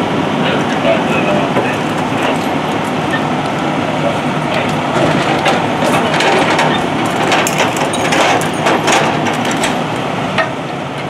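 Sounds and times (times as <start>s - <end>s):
fire engines diesel idling: 0.0s - 11.0s
metal clanks and knocks: 4.6s - 10.6s.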